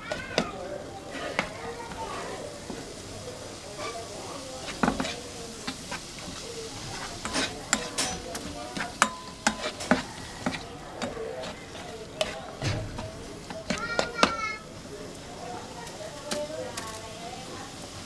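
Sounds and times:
spoon scraping pot: 0:00.0 - 0:02.8, 0:03.6 - 0:14.4
vegetables sizzling: 0:00.0 - 0:18.0
spoon knocking against pot: 0:07.0 - 0:11.6.

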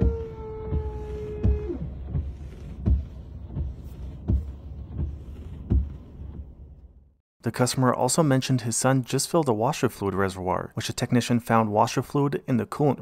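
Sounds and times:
washer pump humming: 0:00.0 - 0:06.8
wipers thumping on windshield: 0:00.0 - 0:07.0.

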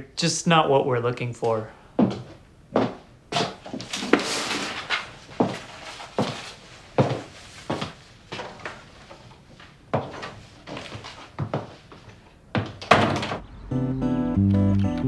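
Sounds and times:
footsteps on wooden floor: 0:02.0 - 0:13.4
door pushed shut: 0:12.8 - 0:13.4.

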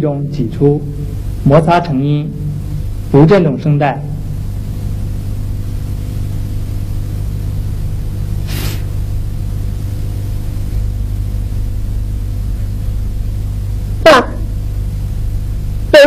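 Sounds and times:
steady low hum: 0:00.0 - 0:16.0
breathy f sound: 0:08.5 - 0:08.9.

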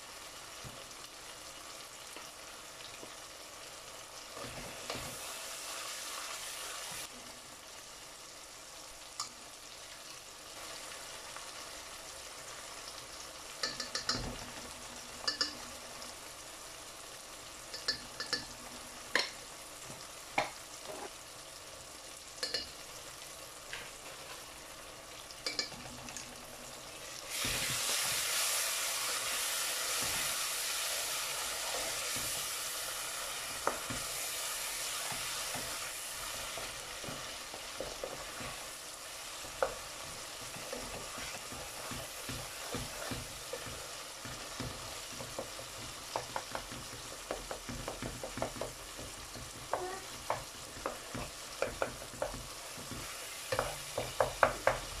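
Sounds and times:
food sizzling in oil: 0:00.0 - 0:55.0
spatula scraping a pan: 0:39.4 - 0:43.8.

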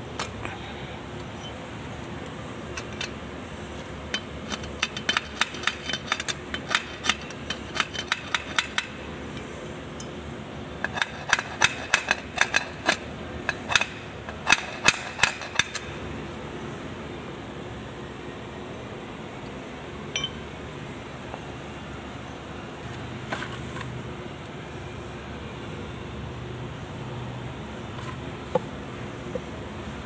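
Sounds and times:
tool tapping on metal: 0:04.1 - 0:09.0, 0:10.8 - 0:15.9, 0:20.1 - 0:20.4.

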